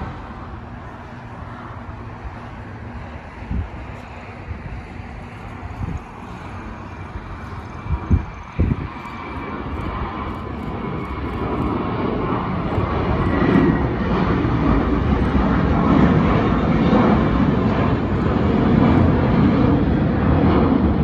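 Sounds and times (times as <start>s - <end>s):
jet airliner engine rumble: 0.0s - 21.0s.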